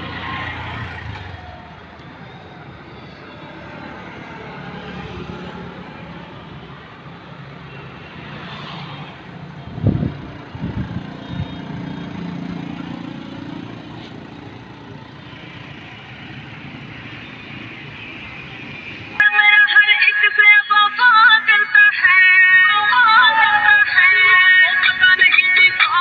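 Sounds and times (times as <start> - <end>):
traffic hum and rumble: 0.0 - 19.2, 20.4 - 26.0
music with singing: 19.2 - 26.0.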